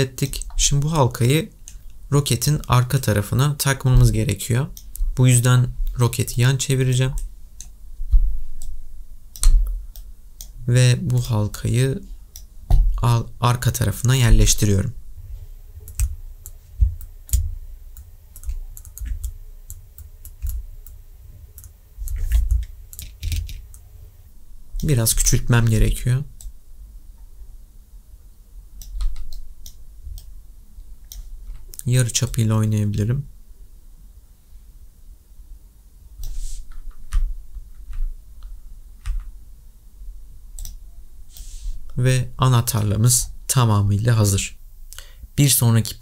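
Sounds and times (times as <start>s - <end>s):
dull low thump: 8.0s - 8.4s
computer mouse clicking: 15.8s - 21.0s, 21.6s - 23.8s, 28.8s - 30.3s, 40.6s - 40.8s
brief hiss: 36.2s - 36.7s.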